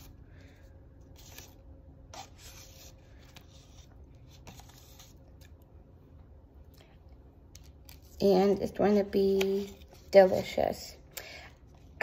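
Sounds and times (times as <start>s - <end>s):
knife scraping apple: 1.2s - 5.2s.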